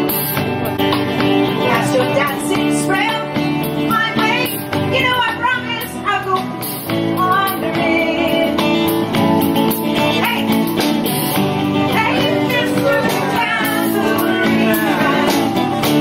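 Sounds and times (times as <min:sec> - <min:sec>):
bass guitar: 0:00.0 - 0:16.0
drums: 0:00.0 - 0:16.0
electric guitar: 0:00.0 - 0:16.0
strummed acoustic guitar: 0:00.0 - 0:16.0
woman singing: 0:01.6 - 0:06.6, 0:07.2 - 0:08.9, 0:10.0 - 0:10.7, 0:11.8 - 0:16.0.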